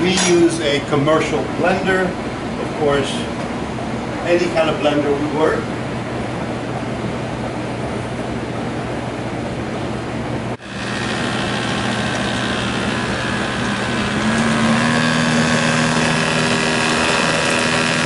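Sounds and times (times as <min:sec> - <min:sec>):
background hum: 0:00.0 - 0:18.0
immersion blender motor whine: 0:10.6 - 0:18.0.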